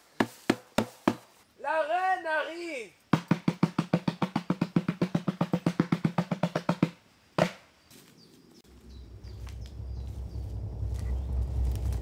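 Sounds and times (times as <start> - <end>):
drum beaten fast: 3.2 - 6.9
low outdoor rumble: 8.7 - 12.0.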